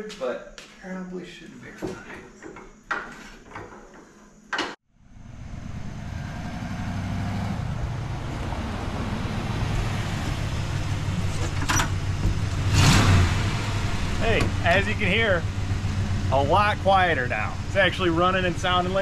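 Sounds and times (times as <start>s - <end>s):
car engine and exhaust: 4.9s - 19.0s.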